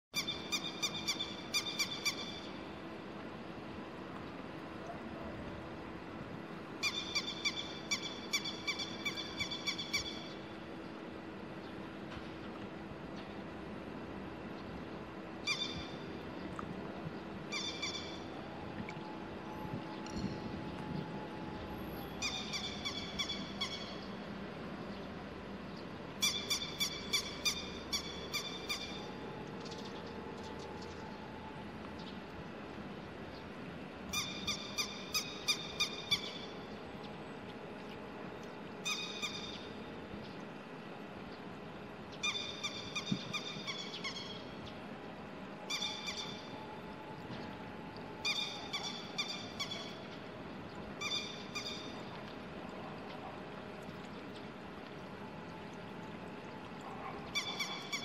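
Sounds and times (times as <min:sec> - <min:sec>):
lapwing calling sharply: 0:45.7 - 0:46.5, 0:48.2 - 0:50.0, 0:51.0 - 0:52.0, 0:57.3 - 0:58.0.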